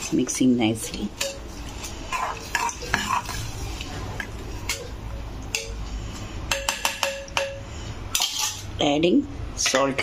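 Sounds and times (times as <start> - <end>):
metal spoon scraping a pot: 0.8 - 3.9, 7.4 - 8.8.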